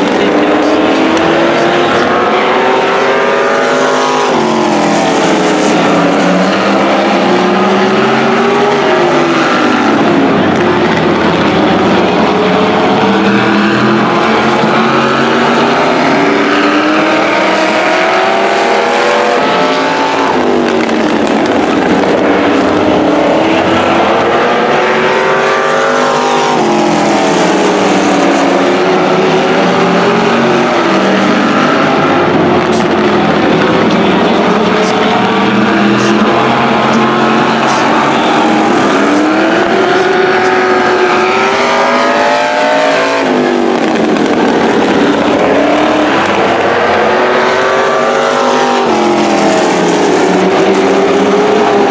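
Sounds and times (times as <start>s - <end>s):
race car engines passing: 0.0s - 51.9s.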